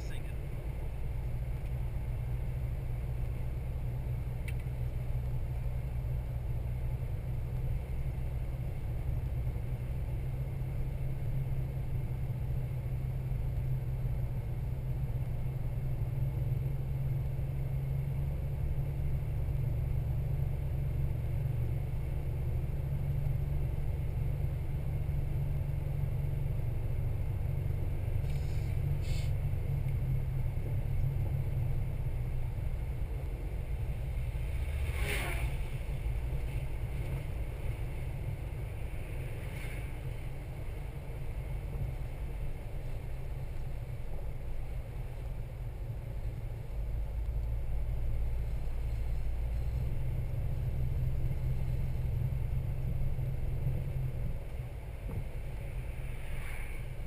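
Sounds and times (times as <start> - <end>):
engine and road noise rumble: 0.0 - 57.0.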